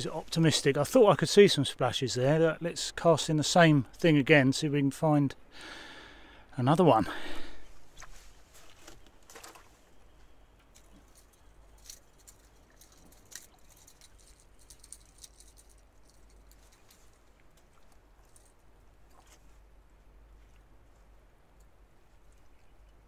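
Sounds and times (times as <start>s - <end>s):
faint irregular clicks: 10.6s - 19.3s, 21.5s - 23.0s.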